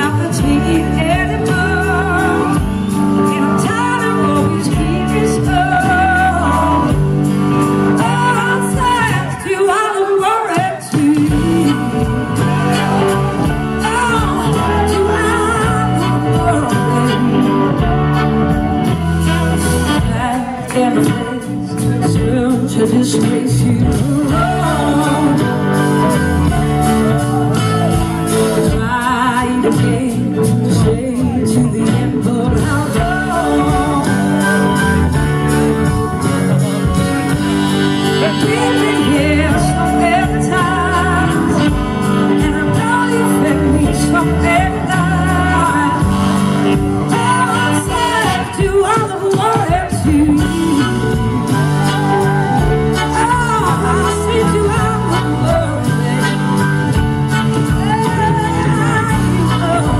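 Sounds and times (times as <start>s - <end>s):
blues-rock band playing: 0.0s - 59.9s
drums: 0.0s - 59.9s
electric guitar: 0.0s - 59.9s
woman singing lead: 0.0s - 59.9s
horn section: 11.3s - 20.6s.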